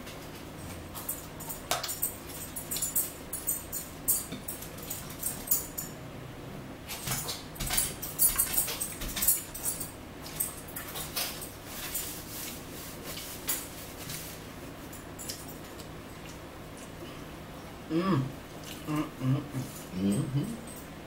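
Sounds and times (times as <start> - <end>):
chewing and lip-smacking: 15.2 - 17.3, 18.4 - 19.9.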